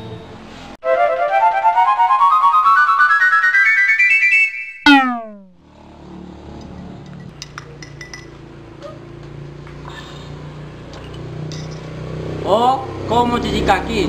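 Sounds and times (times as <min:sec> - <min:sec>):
falling sound effect: 0:00.8 - 0:05.6
spoon clinking on glass: 0:07.1 - 0:08.4.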